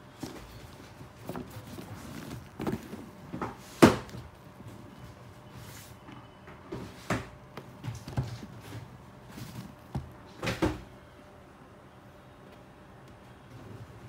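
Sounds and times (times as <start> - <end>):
sneaker handling knocks and rustles: 0.1 - 4.3, 6.7 - 10.9.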